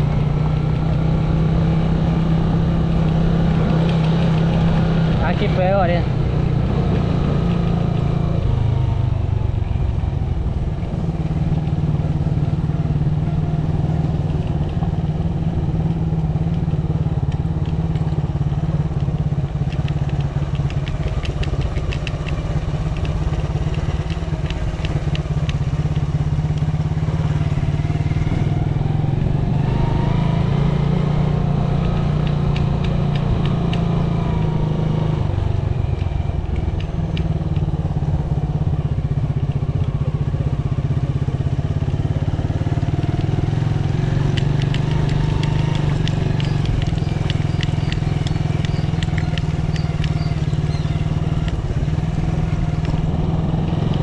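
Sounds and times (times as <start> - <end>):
small motorcycle engine running: 0.0 - 54.0
fast clicking rattle: 19.1 - 26.8.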